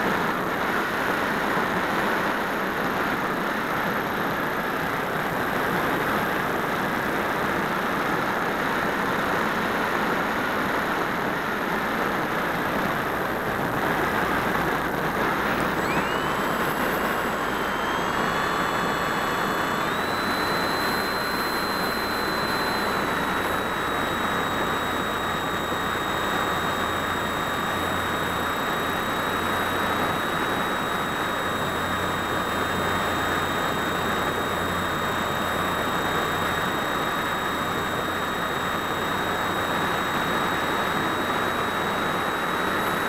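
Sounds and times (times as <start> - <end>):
electric motor and propeller whine: 10.6 - 43.0.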